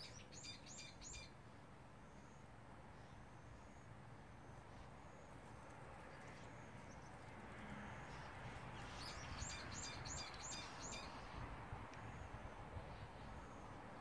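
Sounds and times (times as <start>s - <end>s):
bird chirping: 0.0s - 1.3s, 8.8s - 11.3s
faint outdoor background noise: 0.0s - 14.0s.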